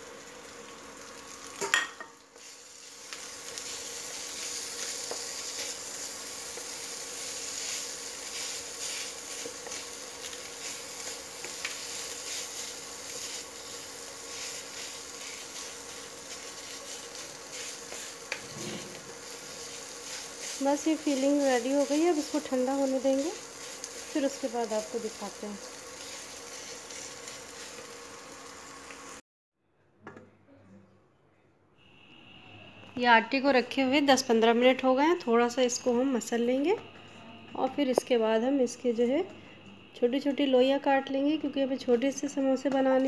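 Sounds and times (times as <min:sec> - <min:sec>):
meat sizzling in a pan: 0:00.0 - 0:29.2
wooden spatula scraping pan: 0:10.6 - 0:21.9.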